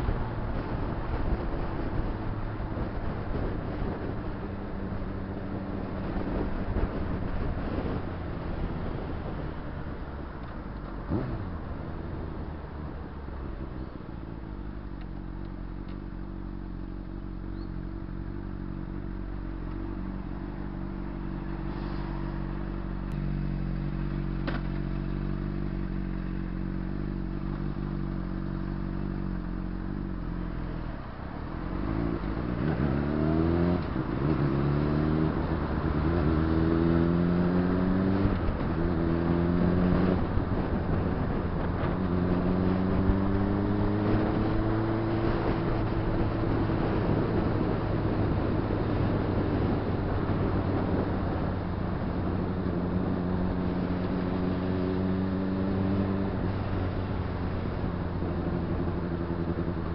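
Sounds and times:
motorcycle engine revving: 0:31.5 - 0:59.9.

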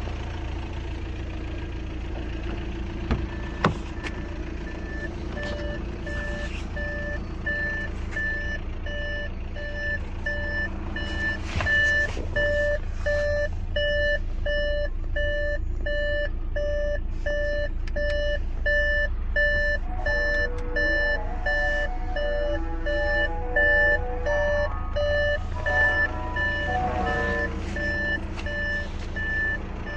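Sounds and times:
low engine hum: 0:00.0 - 0:29.9
electronic warning beeps: 0:03.3 - 0:29.9.

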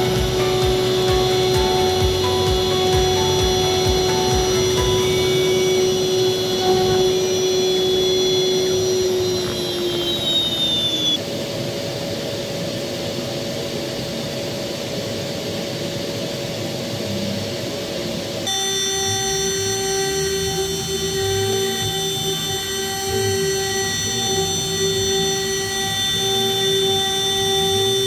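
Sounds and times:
power tool motor whining: 0:00.0 - 0:11.2, 0:18.5 - 0:28.0
noisy hiss: 0:00.0 - 0:28.0.

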